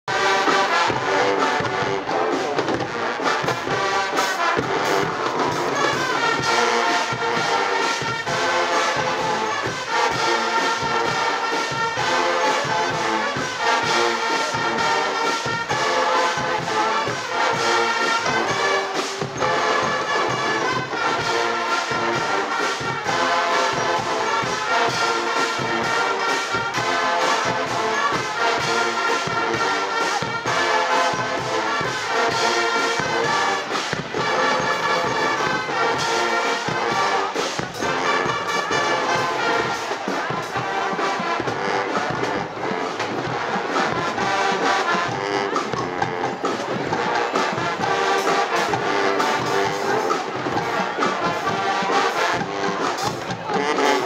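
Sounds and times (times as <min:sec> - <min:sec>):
brass band playing: 0:00.0 - 0:54.0
drum beat with cymbals: 0:00.1 - 0:54.0.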